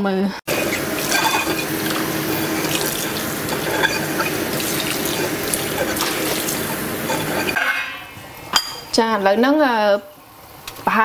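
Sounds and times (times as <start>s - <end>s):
water drips and clinks: 0.5s - 7.6s
water running into a steel sink: 0.5s - 7.6s.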